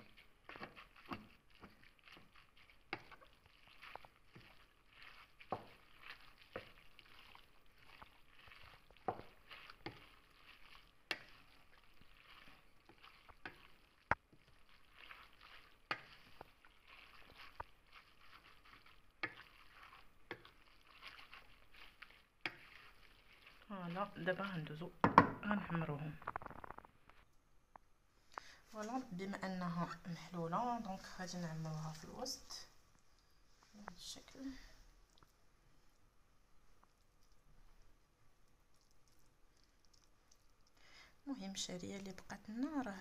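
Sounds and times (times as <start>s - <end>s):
soft wet rustle of stirring: 0.0s - 43.0s
spoon knocking against pot: 25.0s - 25.4s.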